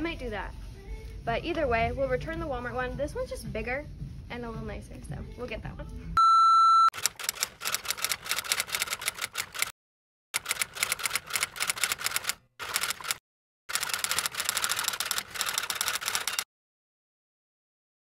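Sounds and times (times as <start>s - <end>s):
rapid keyboard key clicks: 7.0s - 9.7s, 10.4s - 16.4s.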